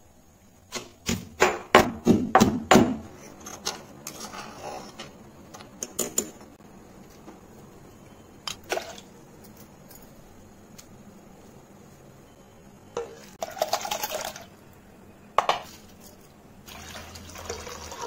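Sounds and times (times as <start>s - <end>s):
pestle pounding in stone mortar: 1.0s - 3.0s.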